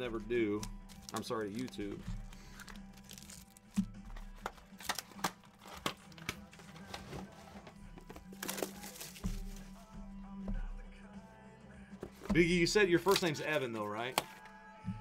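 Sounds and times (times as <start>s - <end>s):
quiet background music: 0.0s - 15.0s
packaging clicking and crinkling: 0.6s - 9.3s.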